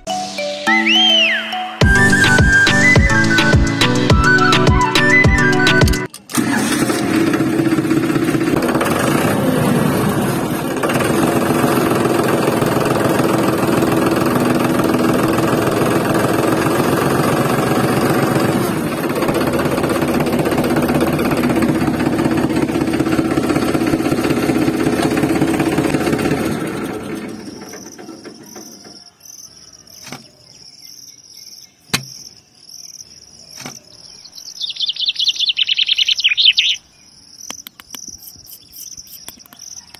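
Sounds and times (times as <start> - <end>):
high chirps: 0.0 - 6.1, 34.2 - 39.8
sharp taps: 31.9 - 32.2.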